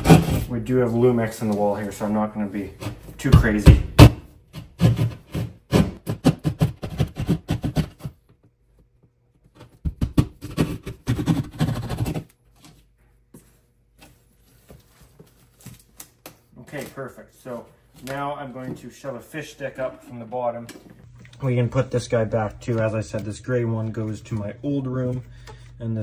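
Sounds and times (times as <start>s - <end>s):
hand saw rasping through drywall: 0.0s - 0.5s, 4.6s - 8.2s, 10.2s - 12.3s.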